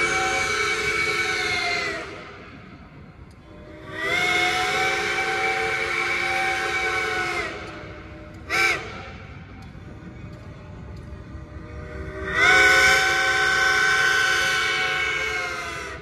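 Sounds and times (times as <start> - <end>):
low steam hiss: 0.0 - 16.0
steam whistle blast: 3.8 - 9.2, 12.3 - 15.9.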